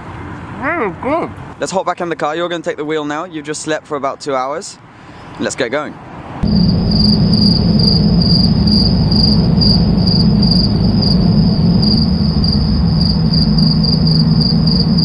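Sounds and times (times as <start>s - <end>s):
car road and engine drone: 0.0s - 1.6s, 6.0s - 15.0s
high thin chirping tone: 6.4s - 15.0s.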